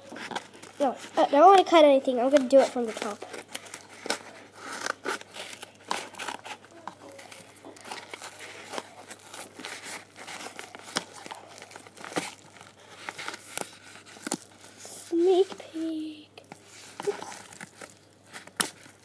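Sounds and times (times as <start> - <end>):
padded mailer crinkling and tearing: 0.0 - 19.0.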